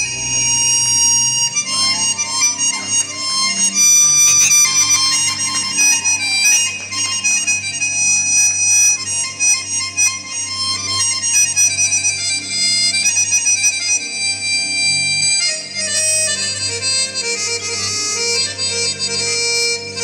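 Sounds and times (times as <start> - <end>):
steady low notes: 0.0 - 11.4
reed-like wind melody: 0.0 - 20.0.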